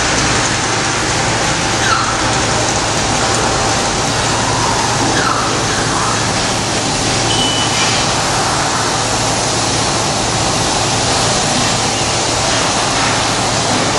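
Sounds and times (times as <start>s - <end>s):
machinery hiss: 0.0s - 13.9s
faint high whine: 7.2s - 8.0s.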